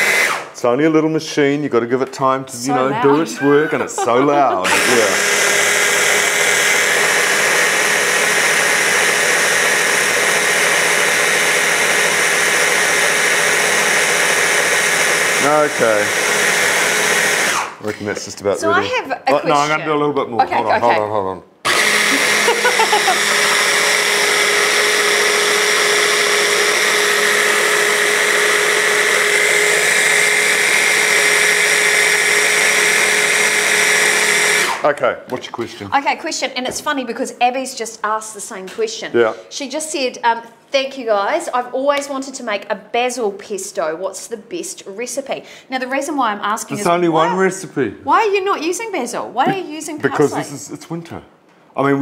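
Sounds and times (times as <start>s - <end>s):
hand blender motor whining: 0.0s - 0.6s, 2.8s - 17.9s, 21.6s - 34.9s.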